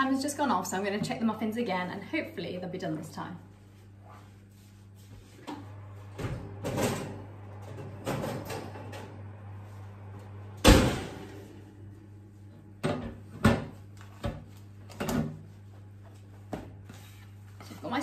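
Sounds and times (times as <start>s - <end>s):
low steady hum: 0.0s - 18.0s
oven door shutting: 10.5s - 11.6s.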